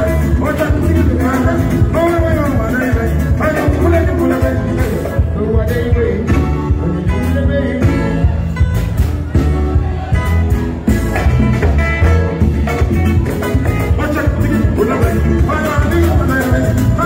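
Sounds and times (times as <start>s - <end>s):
man singing into microphone: 0.0s - 8.4s, 13.8s - 17.0s
live band playing: 0.0s - 17.0s.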